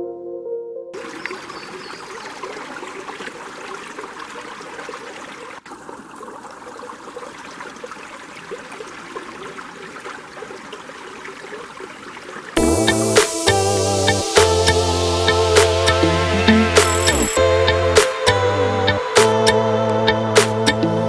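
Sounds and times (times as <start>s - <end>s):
creek water trickling over rocks: 1.0s - 12.6s.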